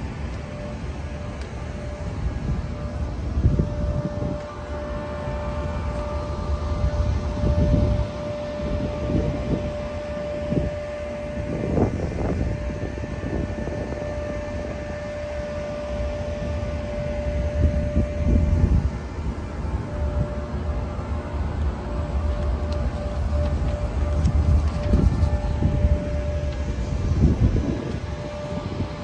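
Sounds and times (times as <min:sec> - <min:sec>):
mechanical hum with whine: 0:00.0 - 0:29.0
low rumble: 0:16.1 - 0:29.0.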